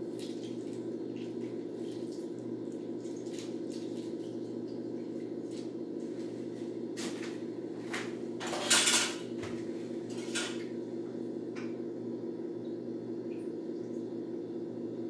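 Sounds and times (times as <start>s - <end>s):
steady low hum: 0.0s - 15.0s
dishes and utensils clattering: 8.4s - 10.6s.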